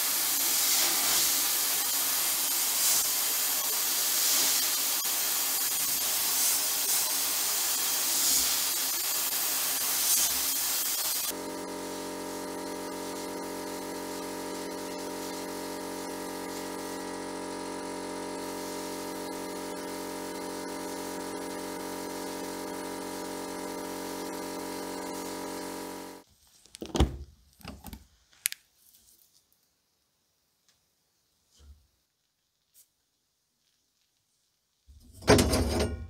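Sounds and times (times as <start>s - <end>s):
electric motor hum: 11.3s - 26.2s.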